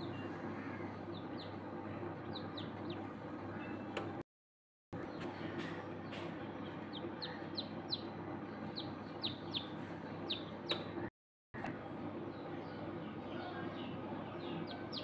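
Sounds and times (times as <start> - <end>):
incubator hum: 0.0 - 4.2, 5.0 - 15.0
chicks peeping: 0.9 - 3.8, 5.0 - 11.1, 13.7 - 15.0.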